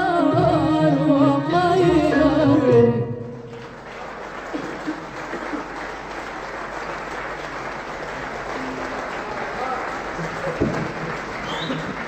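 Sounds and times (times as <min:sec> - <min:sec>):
audience applauding: 0:03.4 - 0:12.0.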